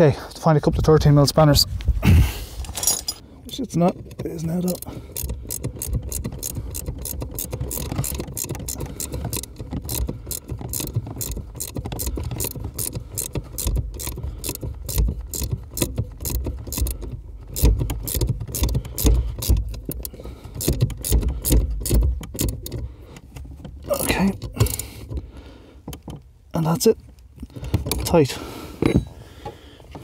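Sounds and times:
spanner rapid metallic clicks: 3.8 - 22.8.

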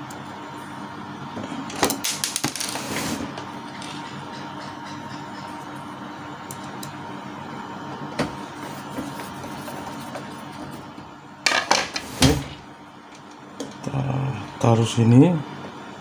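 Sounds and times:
steady background hum: 0.0 - 16.0.

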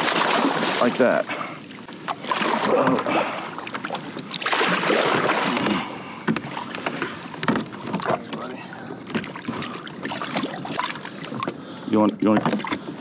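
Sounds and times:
fish splashing in water: 0.0 - 1.1, 1.7 - 8.2, 8.8 - 11.6
small knocks: 6.3 - 8.4, 12.2 - 12.8.

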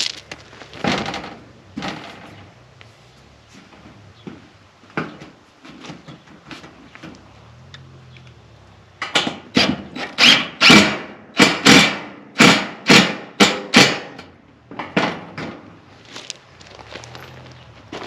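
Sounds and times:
screw gun driving screw: 10.0 - 11.0.

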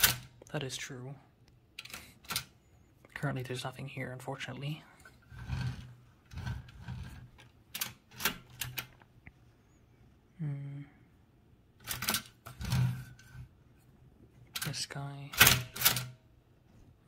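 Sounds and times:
typewriter clacking: 0.0 - 0.3, 15.4 - 16.1
person humming: 10.4 - 11.0.

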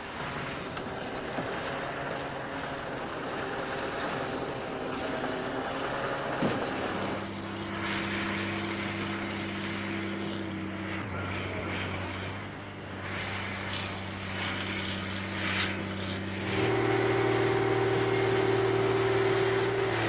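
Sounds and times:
engine running: 0.0 - 20.0.

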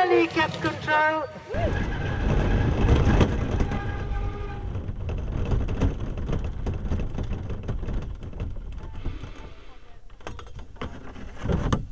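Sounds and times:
cart body rattling over bumps: 0.0 - 11.9
cart wheels rumbling on grass: 0.0 - 11.9.

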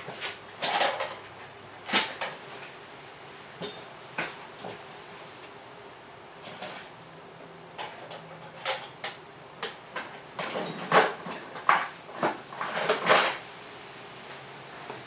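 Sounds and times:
tools knocking and clattering: 3.6 - 4.4, 10.0 - 13.4.

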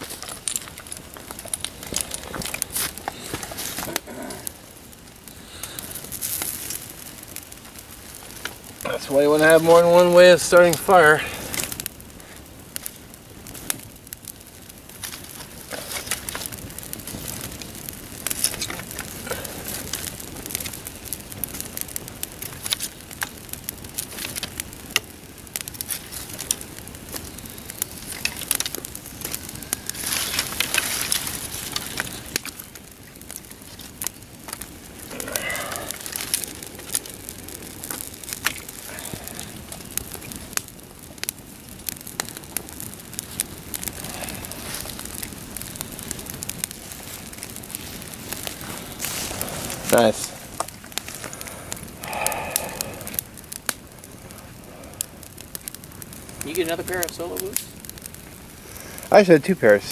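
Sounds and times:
kindling rustling and snapping: 0.0 - 4.5, 25.8 - 51.5
campfire crackling and popping: 0.0 - 59.9.

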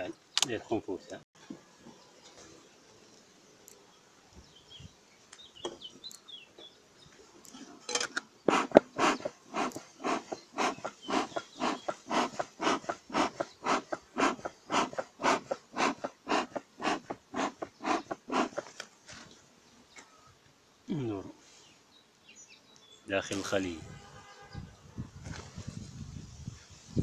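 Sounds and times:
bellows puffing air: 8.4 - 19.2.

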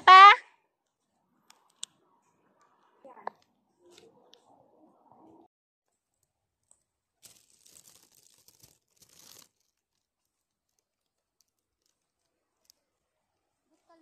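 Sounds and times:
footsteps crunching dry leaves: 7.2 - 9.5.

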